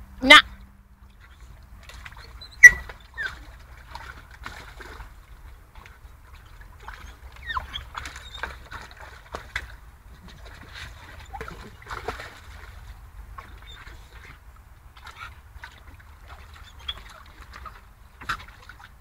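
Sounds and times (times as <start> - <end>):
water sloshing and splashing: 0.0 - 19.0
short squeaks: 2.4 - 3.4.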